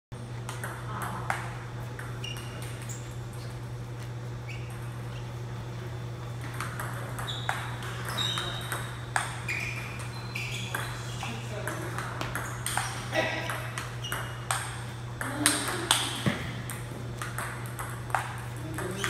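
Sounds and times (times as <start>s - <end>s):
table tennis ball clicking: 6.5s - 10.1s.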